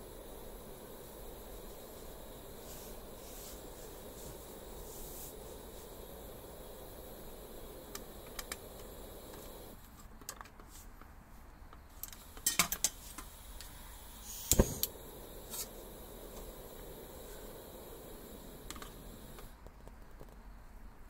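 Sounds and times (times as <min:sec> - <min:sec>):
metal stove parts clinking: 0:12.4 - 0:13.0.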